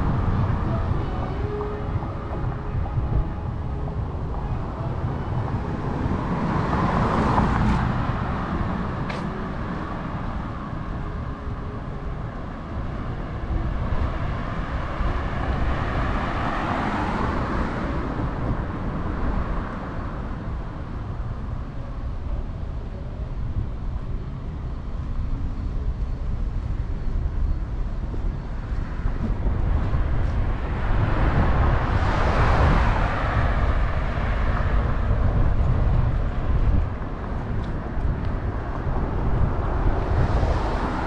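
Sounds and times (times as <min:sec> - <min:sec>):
cars driving past: 0:00.0 - 0:21.6, 0:28.0 - 0:41.0
low traffic rumble: 0:00.0 - 0:41.0.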